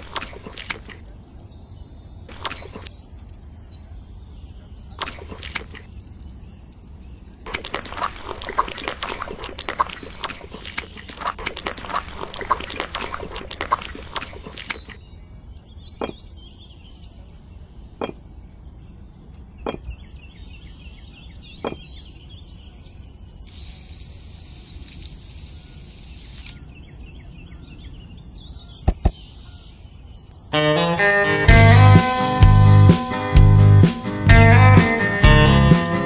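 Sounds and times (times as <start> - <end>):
faint bird chirps: 0.8 - 7.4, 14.2 - 30.6
steady high hiss: 23.5 - 26.6
tiny bricks clicking: 23.5 - 26.6.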